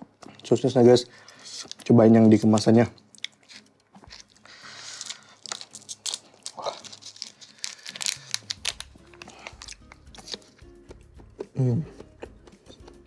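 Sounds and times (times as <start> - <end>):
plastic wrapper crinkling and tearing: 1.2 - 10.6.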